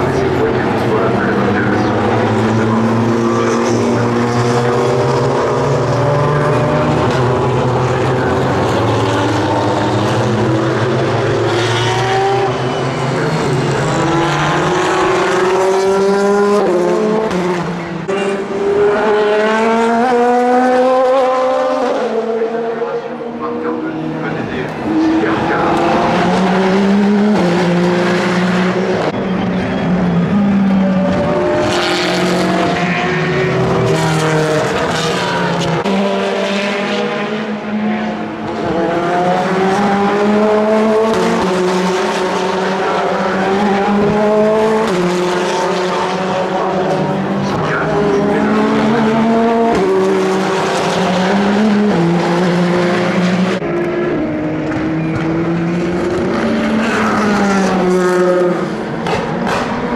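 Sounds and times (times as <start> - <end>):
race car engines running hard: 0.0 - 59.9.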